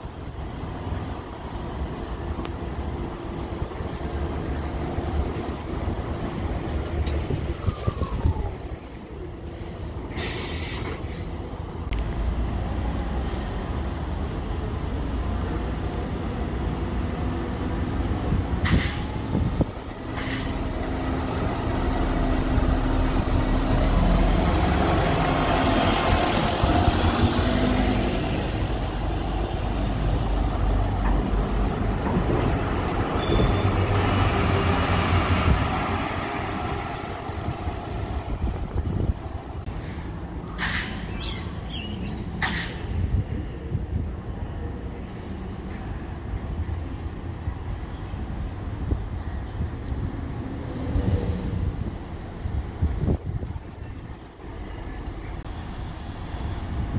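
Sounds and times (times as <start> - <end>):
bus engines running: 0.0 - 56.9
bus passing close: 0.0 - 56.9
short hisses: 10.1 - 11.4.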